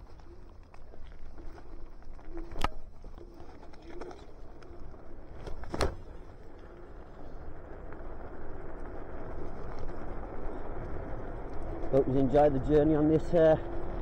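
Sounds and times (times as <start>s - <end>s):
road and wind rush: 4.1s - 14.0s.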